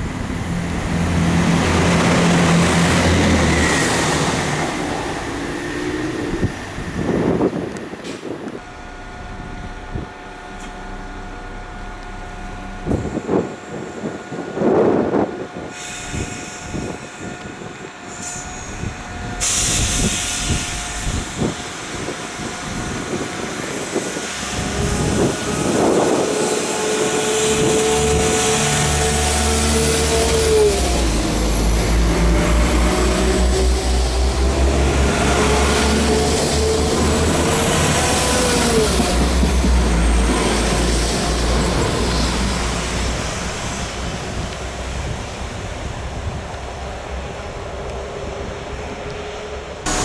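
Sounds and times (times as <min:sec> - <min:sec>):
diesel train engine rumble: 0:00.0 - 0:50.0
air hiss: 0:15.7 - 0:22.2.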